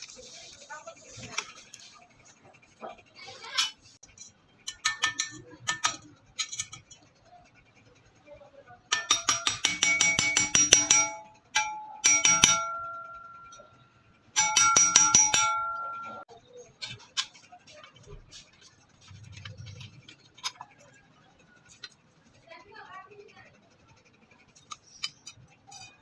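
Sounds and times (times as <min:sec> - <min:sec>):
hammer tapping on steel blade: 0:08.9 - 0:13.5, 0:14.4 - 0:16.2
metal blade ringing: 0:08.9 - 0:13.8, 0:14.4 - 0:16.2.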